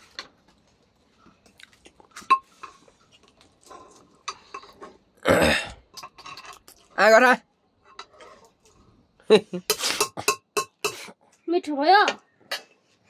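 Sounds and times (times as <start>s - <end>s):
soft chewing: 0.6s - 5.0s.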